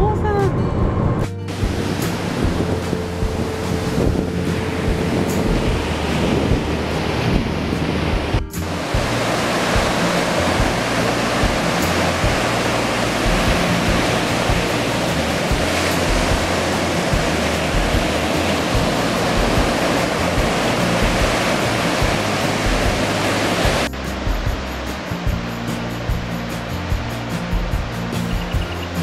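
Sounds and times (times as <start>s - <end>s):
surf breaking on beach: 1.5s - 29.0s.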